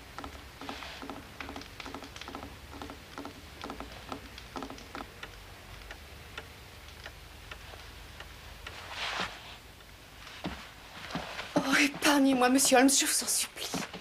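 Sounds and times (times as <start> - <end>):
mantel clock ticking: 0.1 - 8.8.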